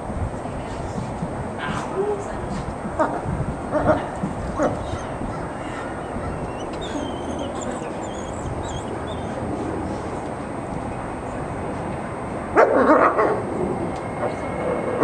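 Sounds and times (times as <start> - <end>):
wolves barking and yipping: 3.7 - 10.0
faint high chirping: 5.9 - 9.4.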